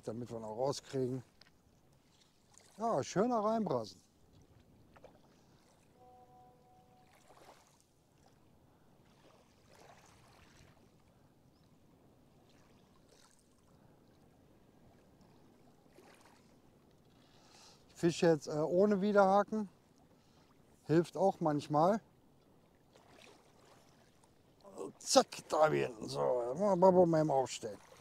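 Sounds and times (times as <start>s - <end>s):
brief faint tone: 6.0s - 7.2s.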